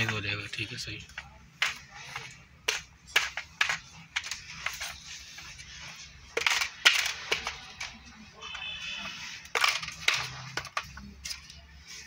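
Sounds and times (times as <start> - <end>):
plastic parts clicking: 6.3 - 8.2, 9.4 - 11.6.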